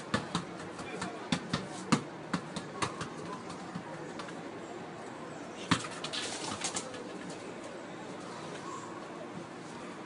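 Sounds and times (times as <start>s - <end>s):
football kicked and bouncing: 0.0s - 4.4s, 5.7s - 6.1s.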